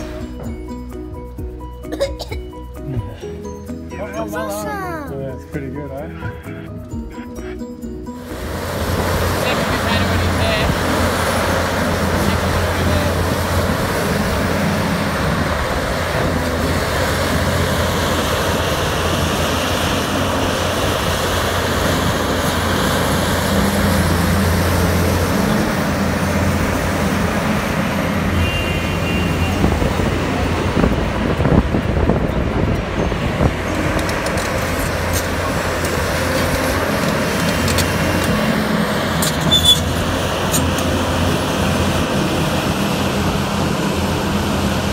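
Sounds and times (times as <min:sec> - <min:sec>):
heavy machinery engines droning: 0:00.0 - 0:44.9.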